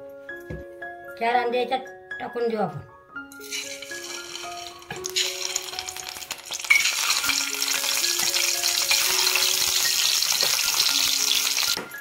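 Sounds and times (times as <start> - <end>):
background music melody: 0.0 - 12.0
eggs sizzling in hot oil: 3.4 - 11.8.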